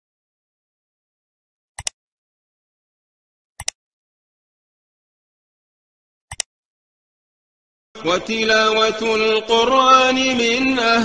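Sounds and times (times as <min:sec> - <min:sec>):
mouse double clicks: 0:01.8 - 0:02.0.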